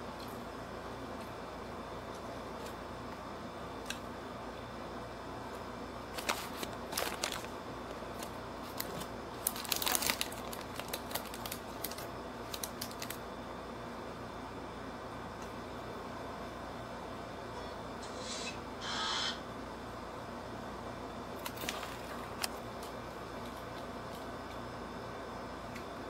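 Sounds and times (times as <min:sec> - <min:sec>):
steady low hum: 0:00.0 - 0:26.0
crisp chewing: 0:06.1 - 0:13.2, 0:21.4 - 0:24.6.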